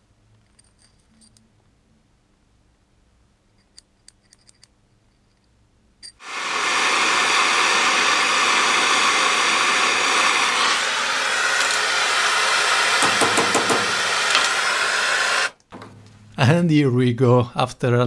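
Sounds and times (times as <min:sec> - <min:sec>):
gas torch flame hissing: 0:06.2 - 0:15.6.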